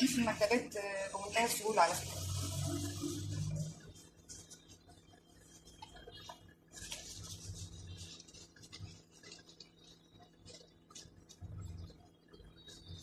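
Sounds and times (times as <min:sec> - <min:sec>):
paper rustling: 0:05.4 - 0:11.8.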